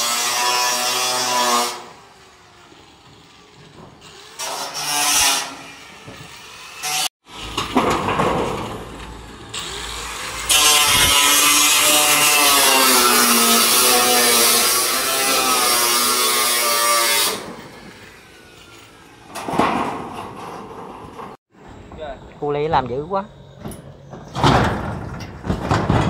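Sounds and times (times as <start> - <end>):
angle grinder cutting steel: 0.0 - 7.5, 9.5 - 19.3.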